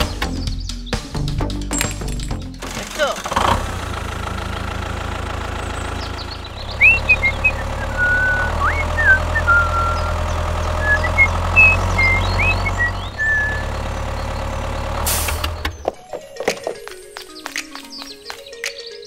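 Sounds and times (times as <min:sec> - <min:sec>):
tractor engine running: 0:01.5 - 0:16.0
high whistled chirps: 0:05.8 - 0:14.5.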